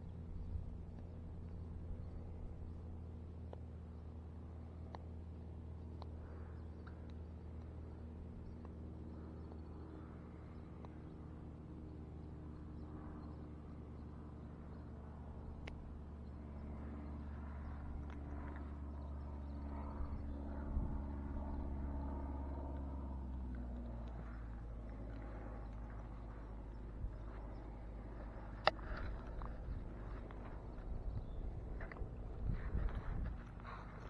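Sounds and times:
low mechanical hum: 0.0s - 34.0s
faint clicks: 10.7s - 11.1s, 15.6s - 15.8s, 22.7s - 30.9s.

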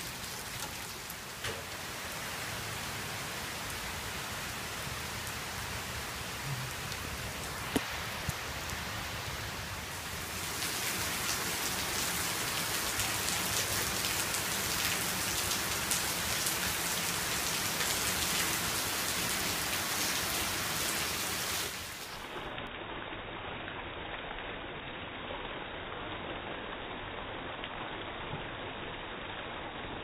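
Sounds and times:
water pouring from downspout: 0.0s - 9.1s, 9.8s - 22.7s
heavy rain hissing: 0.0s - 22.6s.

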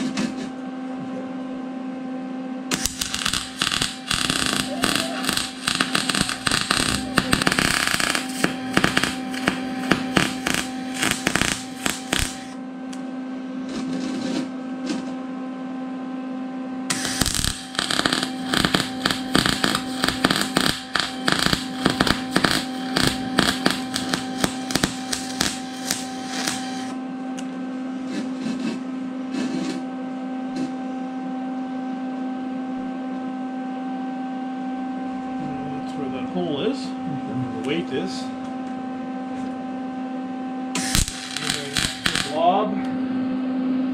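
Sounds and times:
steady hum: 0.0s - 43.9s
welder arc crackling: 2.7s - 12.6s, 16.9s - 27.0s, 40.8s - 42.4s.

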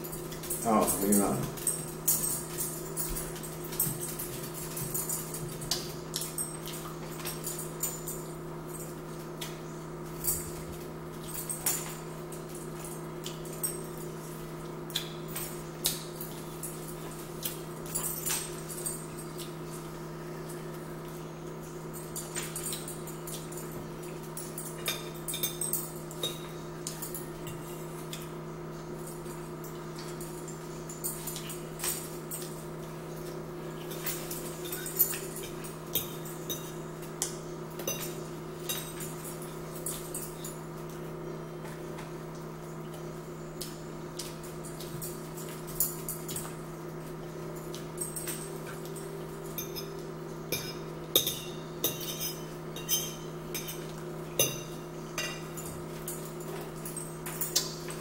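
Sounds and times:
low electrical hum: 0.0s - 58.0s
forks clicking on plates: 33.2s - 40.6s, 47.7s - 58.0s.

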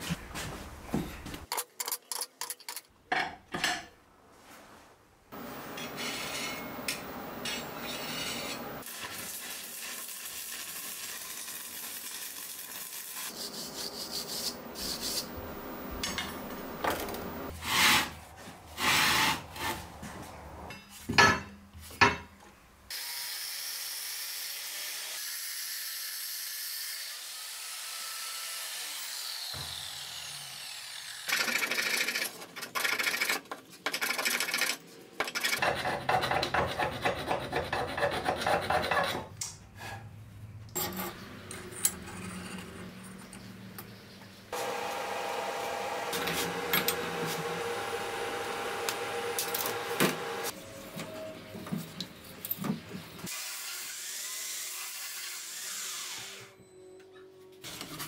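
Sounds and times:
metal scraping: 5.4s - 8.9s, 13.2s - 21.0s.

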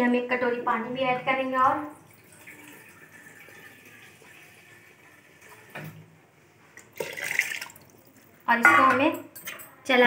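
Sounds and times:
water pouring into pot: 1.9s - 5.8s, 6.8s - 8.4s.

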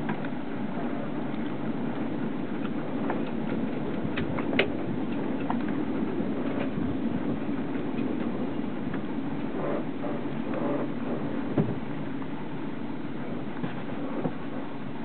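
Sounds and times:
low rumbling background noise: 0.0s - 15.0s.

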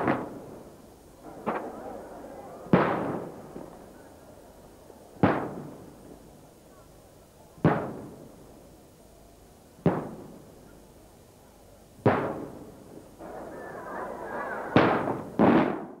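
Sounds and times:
firework booms echoing: 0.0s - 4.0s, 5.1s - 6.2s, 7.6s - 8.5s, 9.8s - 10.5s, 12.0s - 13.5s, 14.6s - 16.0s.

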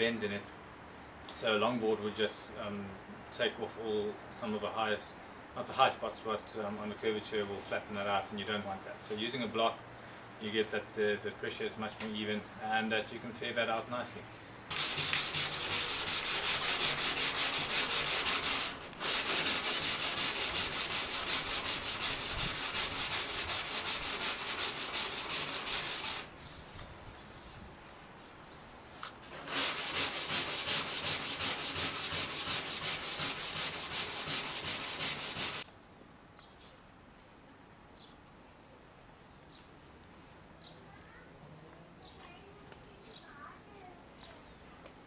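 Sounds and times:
hand sanding fibreglass: 14.7s - 35.7s.

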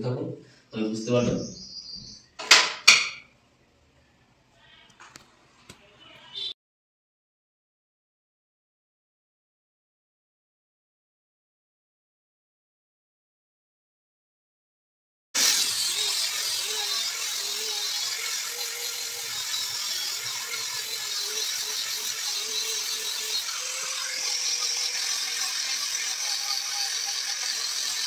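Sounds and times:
angle grinder grinding wood: 15.4s - 28.0s.

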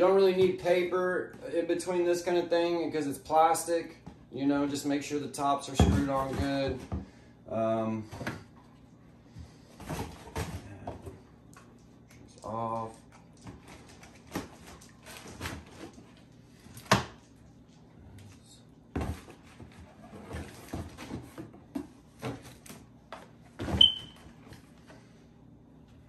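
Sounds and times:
short squeak: 23.8s - 24.2s.

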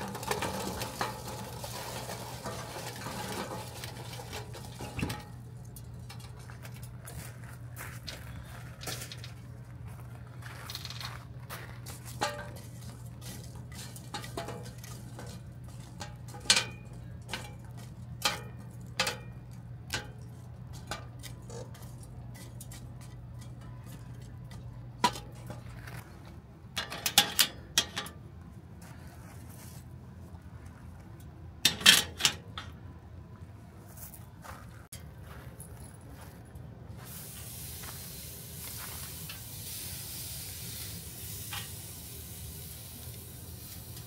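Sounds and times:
metal tongs clinking on charcoal: 0.0s - 7.0s, 12.0s - 25.7s, 26.8s - 28.2s, 31.6s - 32.7s, 40.1s - 44.0s
metal grill grate clanking: 0.0s - 7.2s, 11.8s - 26.0s, 26.8s - 28.2s, 31.6s - 32.8s, 39.1s - 44.0s.

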